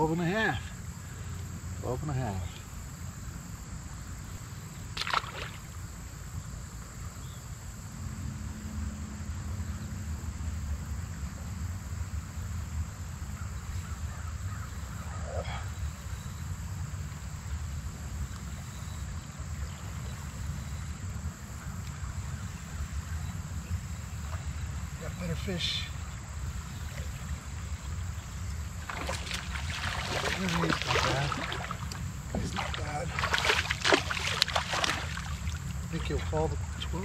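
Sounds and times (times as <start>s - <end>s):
river rumble: 0.0s - 37.0s
faint hiss: 12.3s - 37.0s.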